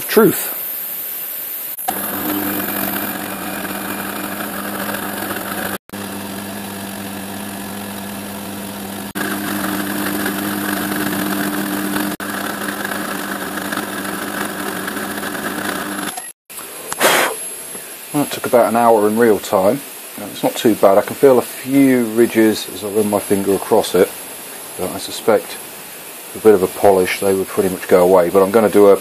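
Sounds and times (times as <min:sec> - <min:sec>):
milling machine cutting metal: 0:01.8 - 0:16.4.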